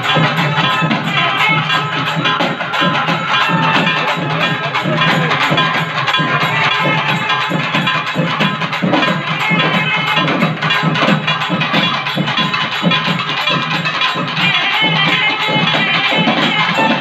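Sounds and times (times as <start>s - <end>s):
group of drums beating: 0.0s - 17.0s.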